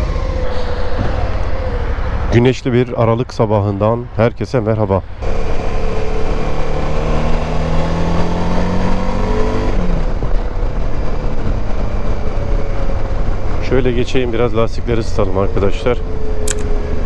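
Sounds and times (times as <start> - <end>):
motorcycle engine accelerating: 5.2 - 14.4.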